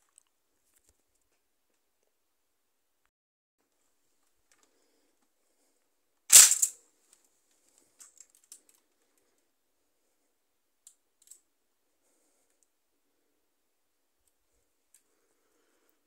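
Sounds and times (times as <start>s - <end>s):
plastic bricks rattling: 6.3s - 6.7s
faint plastic clicks: 7.1s - 9.5s.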